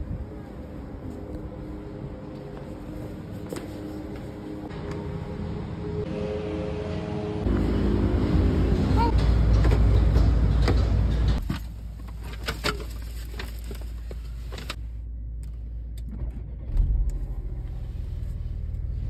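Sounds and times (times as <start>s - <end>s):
outside rumble: 0.0s - 19.0s
car engine starting and idling: 7.1s - 19.0s.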